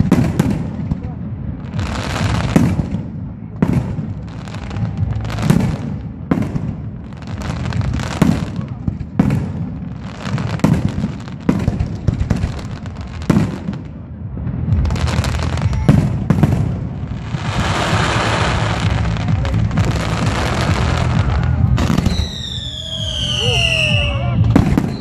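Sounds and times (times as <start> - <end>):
dense firework crackling: 0.0 - 25.0
fireworks bursting with sharp bangs: 0.0 - 25.0
falling firework whistles: 21.8 - 25.0.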